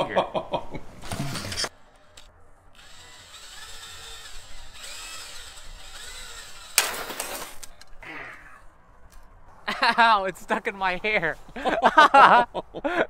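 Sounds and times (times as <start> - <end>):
cordless drill motor whine: 2.8 - 6.8.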